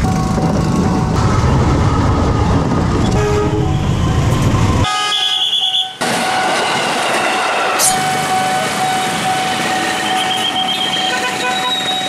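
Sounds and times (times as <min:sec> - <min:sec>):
diesel locomotive rumbling: 0:00.0 - 0:12.0
train horn: 0:03.1 - 0:03.7, 0:04.8 - 0:06.5, 0:10.0 - 0:12.0.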